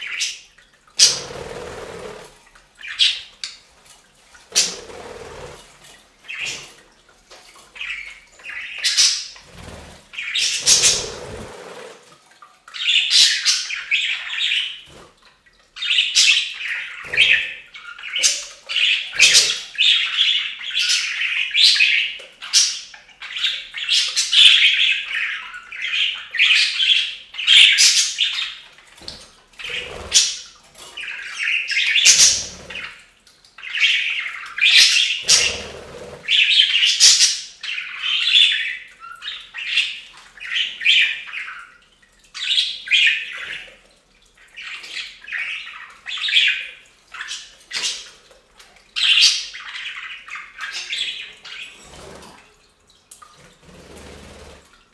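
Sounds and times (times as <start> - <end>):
budgerigars chattering: 10.2 - 11.5, 16.7 - 22.0, 34.6 - 38.7.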